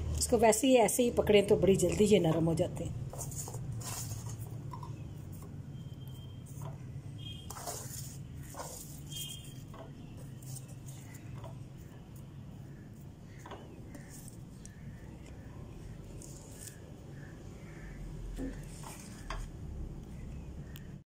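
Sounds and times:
handling noises: 0:01.9 - 0:17.1
rustling of paper: 0:03.0 - 0:15.3, 0:15.9 - 0:17.3.

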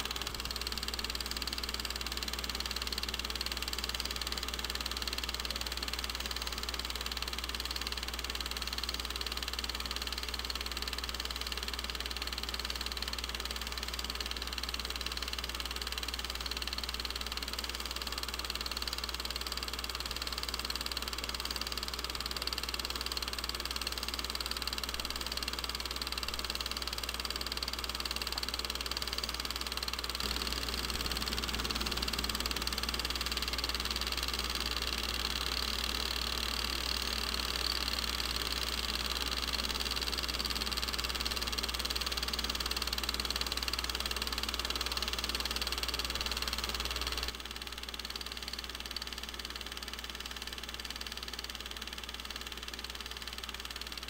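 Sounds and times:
film projector whirring and clattering: 0:00.0 - 0:54.0
low hum: 0:30.2 - 0:36.7.

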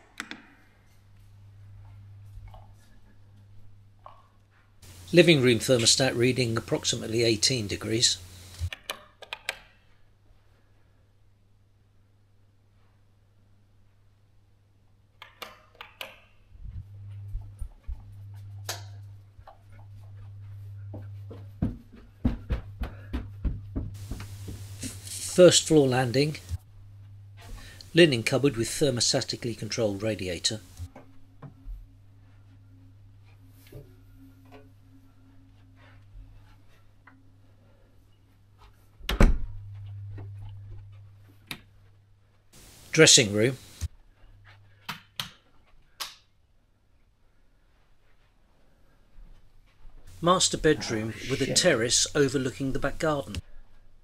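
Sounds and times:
low steady hum: 0:00.0 - 0:08.7, 0:16.5 - 0:44.8, 0:49.7 - 0:54.0
footsteps on wooden stairs: 0:20.9 - 0:25.0.

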